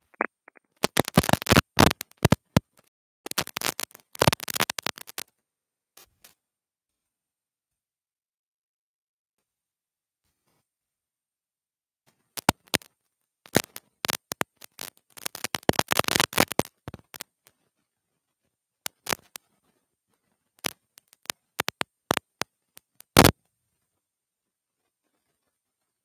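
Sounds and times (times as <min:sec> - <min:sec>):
sharp clicks and crackles: 0:00.0 - 0:05.3, 0:12.4 - 0:12.9, 0:13.5 - 0:17.7, 0:18.8 - 0:23.4.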